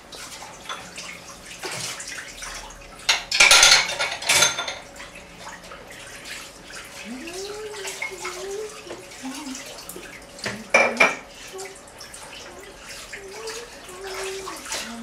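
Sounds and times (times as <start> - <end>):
water splashing: 0.0 - 15.0
dishes knocking in plastic basin: 10.4 - 11.2.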